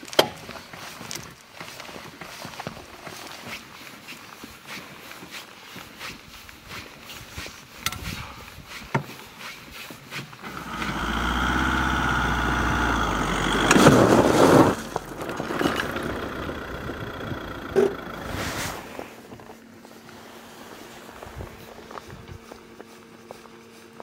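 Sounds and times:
motor engine running: 10.4 - 23.8.

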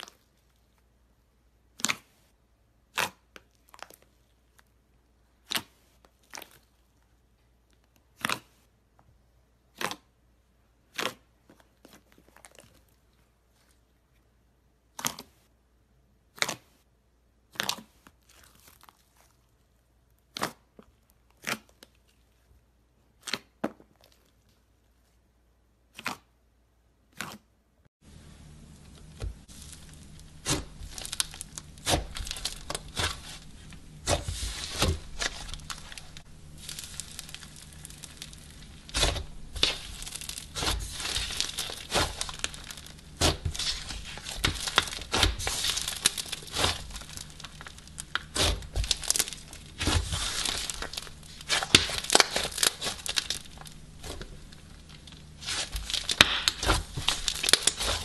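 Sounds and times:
slime crackling and crinkling: 0.0 - 1.0, 1.7 - 8.8, 10.8 - 15.5, 17.4 - 25.2, 27.1 - 58.0
slime popping: 28.7 - 58.0.

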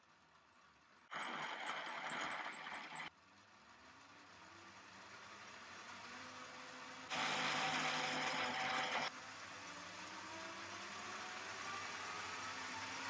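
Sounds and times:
fast regular ticking: 0.6 - 3.1
electric motors whirring: 7.1 - 9.1.

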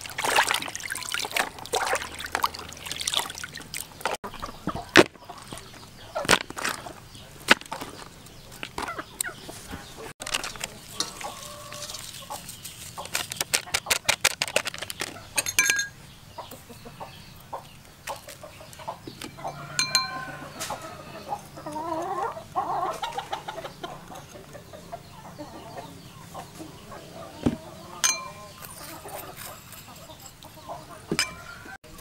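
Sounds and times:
chickens clucking: 0.0 - 32.0
sharp clicks and rattles: 12.9 - 15.9.

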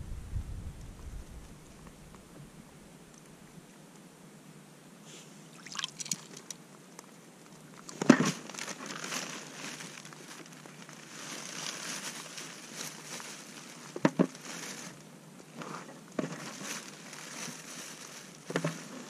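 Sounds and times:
crunching and sloshing in slush: 5.6 - 6.4, 7.8 - 15.0, 16.3 - 19.0.

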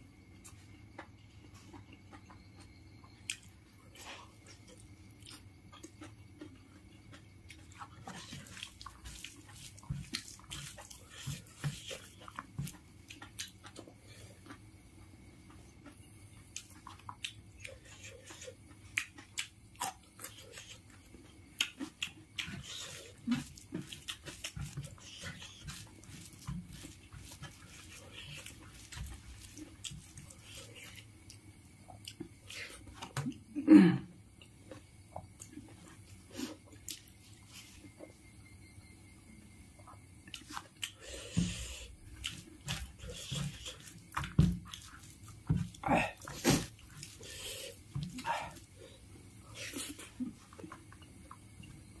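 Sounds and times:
wet chewing and lip smacks: 0.9 - 3.5, 4.3 - 14.7, 15.4 - 33.4, 34.3 - 38.0, 39.8 - 48.7
fingers squishing rice on a leaf: 16.6 - 31.4, 40.3 - 50.4.

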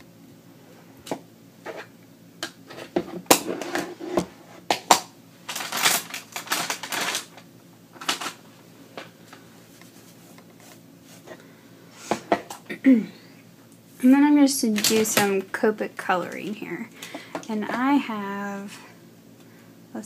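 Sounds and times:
paper rustling: 5.5 - 7.3.

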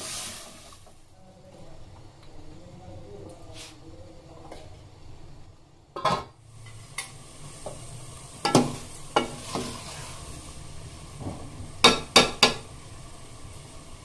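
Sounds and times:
hot pot sizzling hiss: 0.0 - 14.0
spoon knocking pot side: 11.8 - 12.6.

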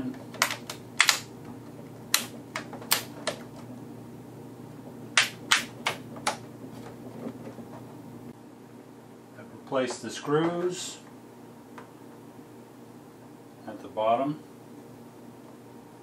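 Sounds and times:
plastic clips snapping into place: 0.3 - 1.3.

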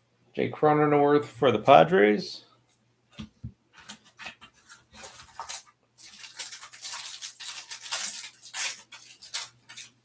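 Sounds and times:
foil wrapper crinkling and tearing: 4.6 - 10.0.

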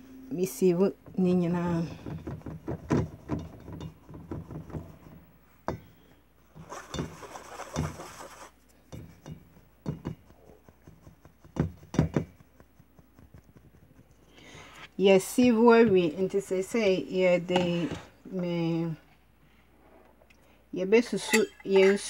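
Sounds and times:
soft rustling of flour: 0.6 - 17.9
metal sieve tapping and rattling: 1.6 - 5.9, 6.6 - 14.2.

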